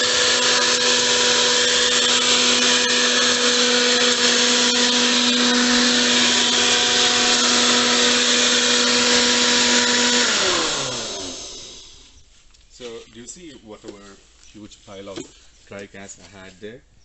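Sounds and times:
garden blower vac whining: 0:00.0 - 0:12.9.

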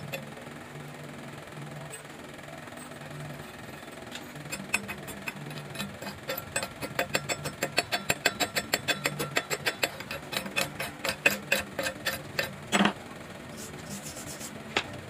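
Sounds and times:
hammer tapping on metal: 0:04.5 - 0:13.0.

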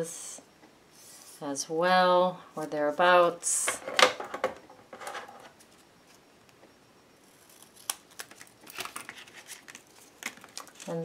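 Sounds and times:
foil crinkling: 0:07.5 - 0:11.0.

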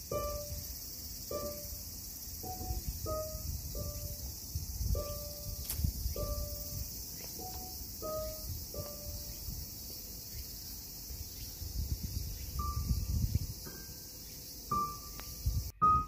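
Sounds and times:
high-pitched insect chorus: 0:00.0 - 0:16.0
soft piano notes: 0:00.0 - 0:16.0.

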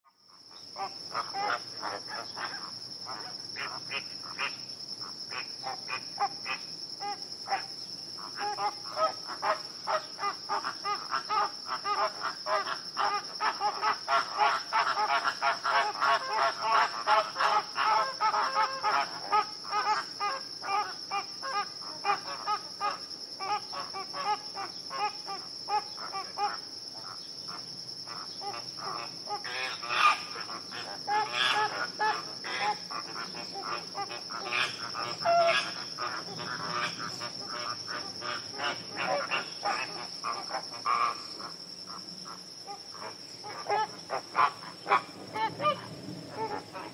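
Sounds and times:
flamingos honking: 0:28.1 - 0:41.5, 0:42.3 - 0:46.9.

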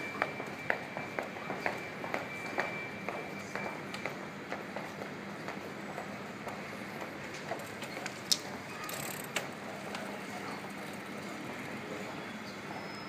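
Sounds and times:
street background noise: 0:00.0 - 0:13.0.

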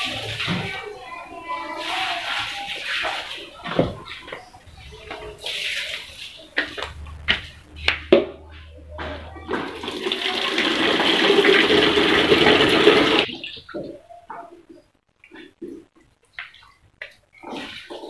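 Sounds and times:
water running into bucket: 0:00.0 - 0:07.0, 0:09.4 - 0:13.3.

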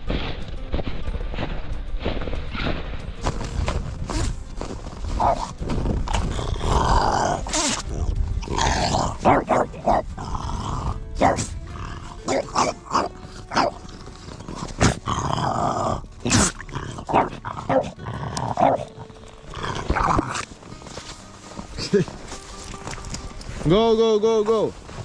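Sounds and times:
dog snorting and grunting: 0:05.1 - 0:22.4.

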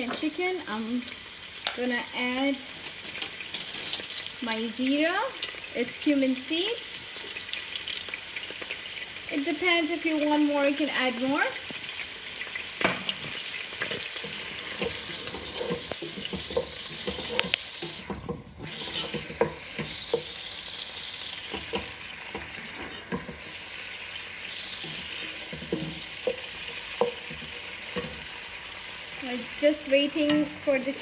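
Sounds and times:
chicken sizzling in hot oil: 0:00.0 - 0:31.0
wooden spatula scraping pot: 0:13.2 - 0:23.8, 0:24.4 - 0:28.6.

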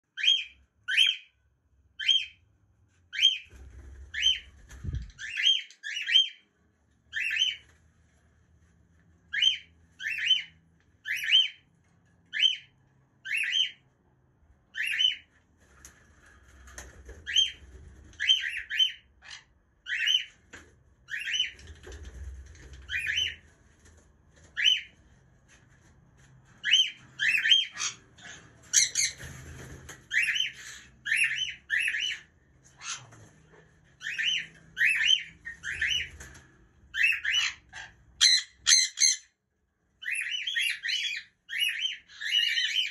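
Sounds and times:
cockatiel calling: 0:09.3 - 0:11.6, 0:12.3 - 0:13.8, 0:14.7 - 0:15.3, 0:26.6 - 0:29.2, 0:30.1 - 0:32.2, 0:34.0 - 0:36.1, 0:37.0 - 0:39.3, 0:40.0 - 0:42.9.

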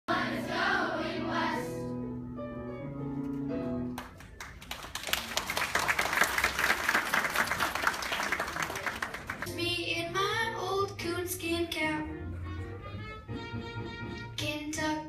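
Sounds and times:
music with held notes: 0:00.1 - 0:04.5, 0:09.4 - 0:15.0
audience clapping and cheering: 0:03.9 - 0:09.5.

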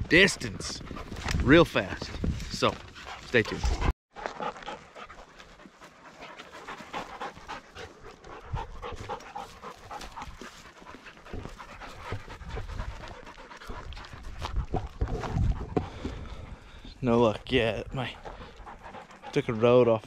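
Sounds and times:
footsteps crunching through dry grass: 0:04.1 - 0:15.8
person panting: 0:06.1 - 0:17.0, 0:18.1 - 0:19.3.

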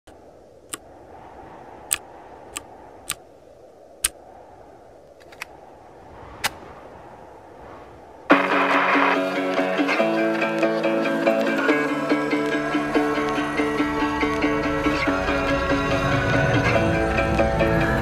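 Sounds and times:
low steady hiss: 0:00.1 - 0:18.0
sharp isolated clicks: 0:01.9 - 0:03.2, 0:05.0 - 0:05.5, 0:06.4 - 0:06.6, 0:12.3 - 0:14.5
plucked-string music: 0:08.3 - 0:18.0.

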